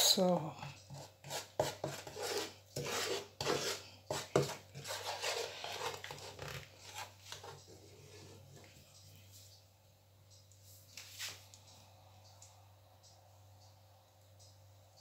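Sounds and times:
wooden spatula scraping pan: 0:00.6 - 0:08.8.

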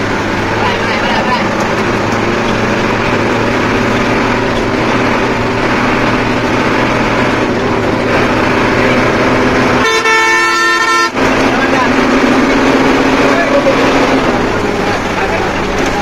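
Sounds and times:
bus engine and road noise: 0:00.0 - 0:16.0
multi-tone horn: 0:09.8 - 0:11.2.

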